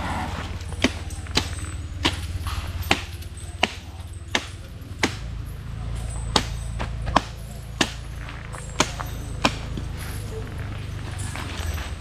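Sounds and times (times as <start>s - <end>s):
steady low hum: 0.0s - 12.0s
sharp chopping strikes: 0.4s - 5.4s, 6.0s - 10.1s.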